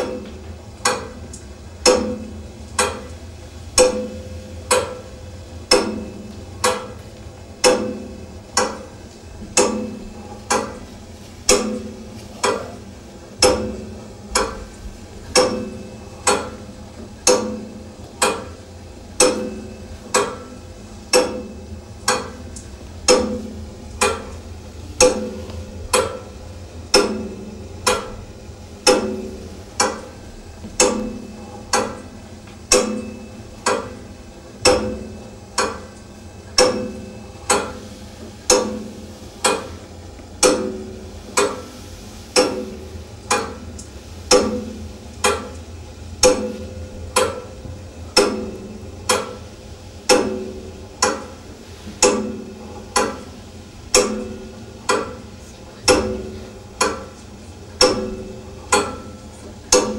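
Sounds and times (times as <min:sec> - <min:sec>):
low steady hum: 0:00.0 - 0:59.9
clock ticking: 0:19.2 - 0:24.4.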